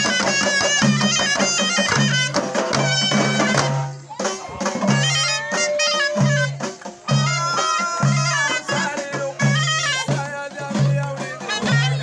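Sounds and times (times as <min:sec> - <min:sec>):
frame drums beating: 0:00.0 - 0:12.0
ornamented folk melody: 0:00.0 - 0:12.0.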